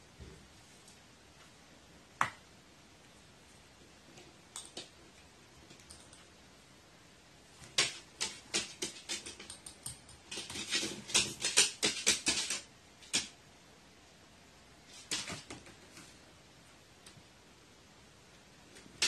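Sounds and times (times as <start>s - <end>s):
crow pecking sharp taps and clicks: 7.6s - 13.3s.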